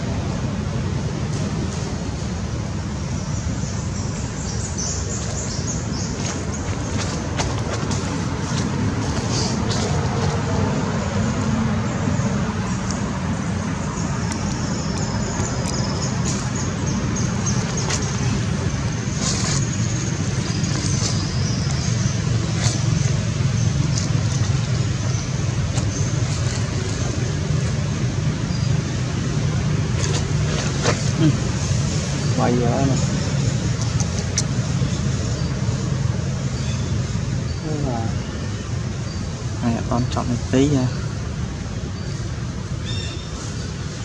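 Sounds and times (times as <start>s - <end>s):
rustling dry leaves: 4.0s - 11.5s, 12.1s - 37.4s.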